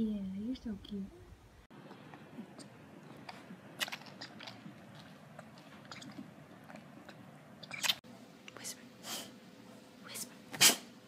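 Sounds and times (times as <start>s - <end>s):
lion cub suckling from bottle: 1.9s - 8.0s.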